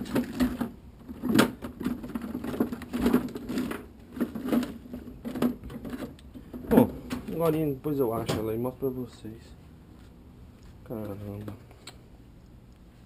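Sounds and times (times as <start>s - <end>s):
objects knocking and rattling: 0.0s - 7.4s.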